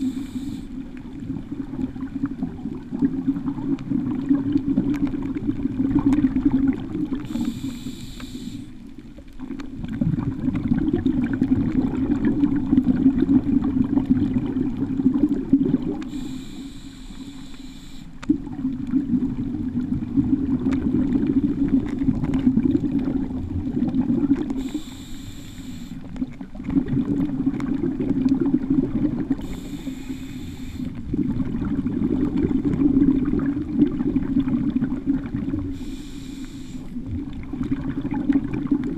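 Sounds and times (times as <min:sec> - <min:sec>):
regulator hissing inhalations: 0:00.0 - 0:00.8, 0:07.2 - 0:08.8, 0:16.1 - 0:18.2, 0:24.6 - 0:26.1, 0:29.4 - 0:31.0, 0:35.7 - 0:36.9
rumbling exhaled bubbles: 0:00.0 - 0:07.8, 0:08.8 - 0:16.3, 0:18.2 - 0:25.0, 0:26.0 - 0:36.2, 0:36.8 - 0:38.9.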